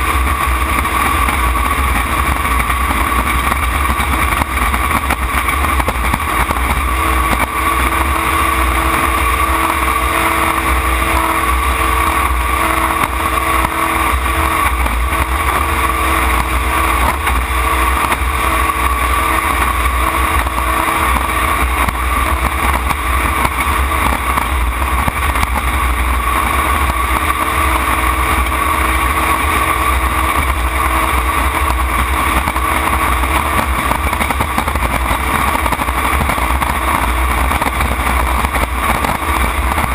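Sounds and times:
boat engine running: 0.0 - 39.9
wind rush: 0.0 - 39.9.

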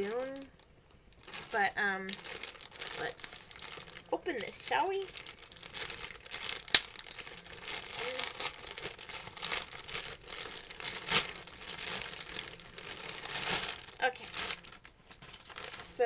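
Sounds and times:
plastic bag crinkling: 0.0 - 16.0
plastic bag snapping: 1.1 - 16.0.

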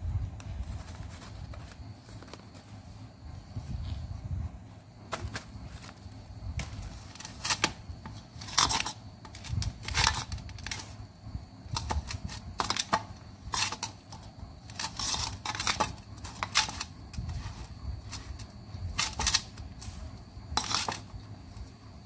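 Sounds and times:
food rustling in steel bowl: 6.6 - 11.0, 11.7 - 21.7.

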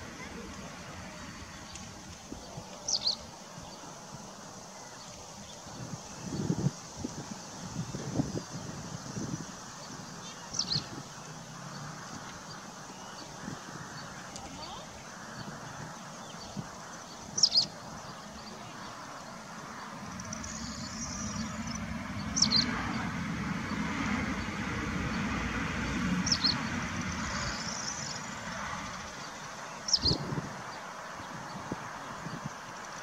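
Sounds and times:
bird chirping: 1.5 - 3.9, 9.2 - 25.3, 26.2 - 33.0
soft bird twittering: 1.5 - 3.9, 9.4 - 25.3, 26.2 - 33.0
low rumble: 19.9 - 29.0.

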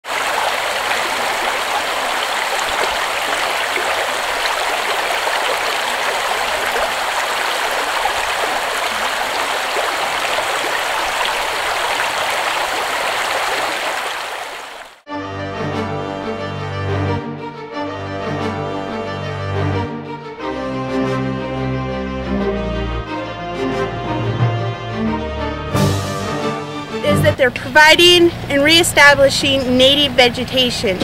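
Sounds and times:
creek rushing over rocks: 0.0 - 15.0.

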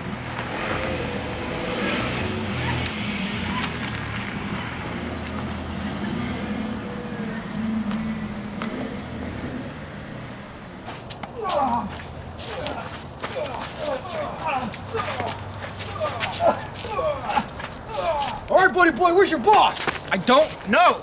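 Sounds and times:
car driving past: 0.0 - 11.0.

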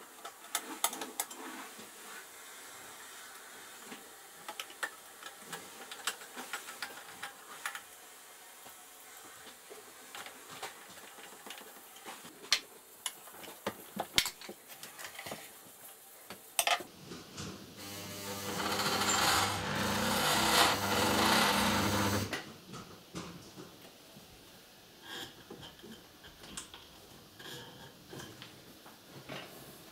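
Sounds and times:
sewing machine running: 17.8 - 22.4.

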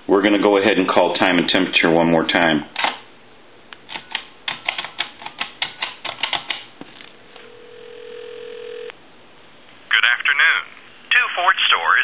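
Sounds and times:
telephone ringback tone: 7.4 - 8.9.

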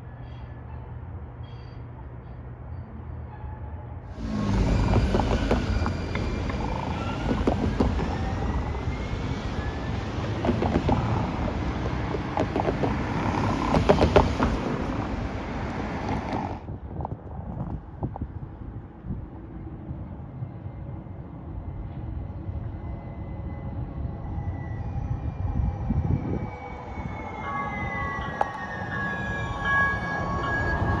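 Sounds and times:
steady rumbling noise: 4.1 - 8.8
electric motor whine: 4.2 - 8.1
wheel clicks on rails: 10.2 - 14.7.

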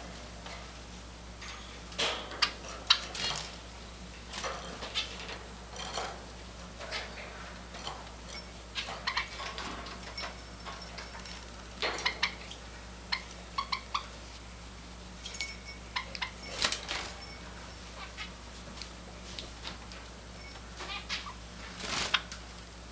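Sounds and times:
high bird chip calls: 12.0 - 14.2.

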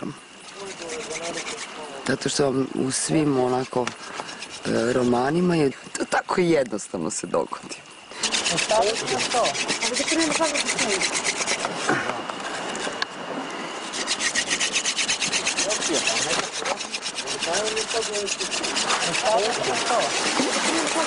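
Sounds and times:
wood rasping against wood: 0.0 - 1.9, 3.1 - 5.4, 8.1 - 11.9, 13.7 - 21.0.

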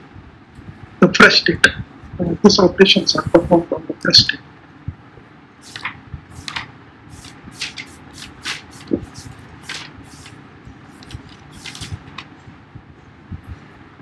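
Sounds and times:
close rustling and scraping: 5.7 - 12.3.

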